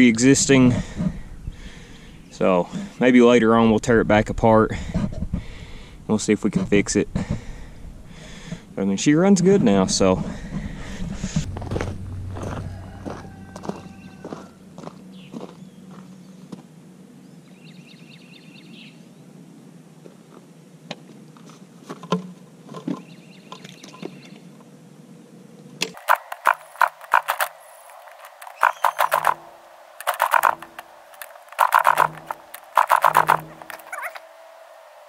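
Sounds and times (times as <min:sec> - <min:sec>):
footsteps on gravel: 0:10.6 - 0:16.6, 0:30.0 - 0:34.2
motorcycle engine kickstarted: 0:25.9 - 0:34.1.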